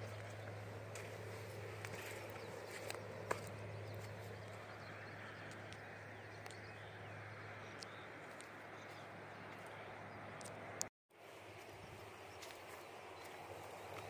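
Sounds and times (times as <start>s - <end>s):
low hum: 0.0s - 10.9s.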